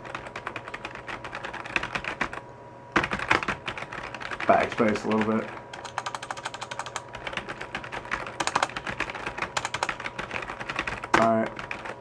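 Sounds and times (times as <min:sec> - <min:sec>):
fast typing on computer keyboard: 0:00.0 - 0:02.4, 0:03.0 - 0:12.0.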